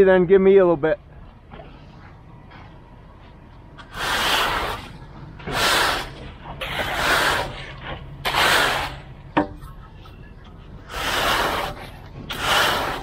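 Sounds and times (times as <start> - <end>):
screed scraping across concrete: 3.8 - 9.2, 10.8 - 13.0.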